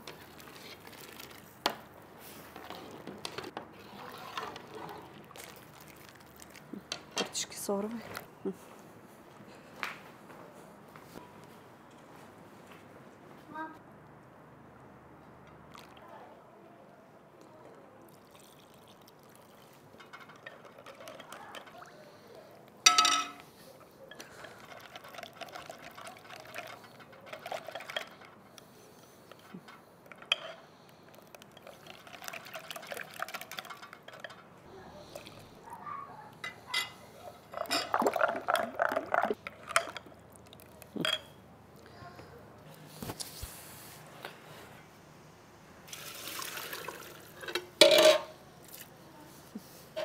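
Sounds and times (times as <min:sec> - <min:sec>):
liquid pouring and splashing: 0:00.0 - 0:01.6, 0:03.8 - 0:06.8, 0:18.1 - 0:22.0, 0:31.1 - 0:34.3, 0:37.6 - 0:40.8, 0:45.9 - 0:47.4
dishes clinking: 0:22.8 - 0:24.5, 0:36.4 - 0:38.8, 0:41.0 - 0:41.4, 0:47.4 - 0:48.4.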